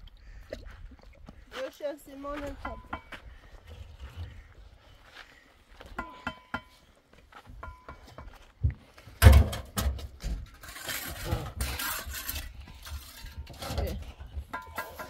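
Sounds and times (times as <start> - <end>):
objects knocking and clattering: 7.5 - 10.7, 12.6 - 15.0.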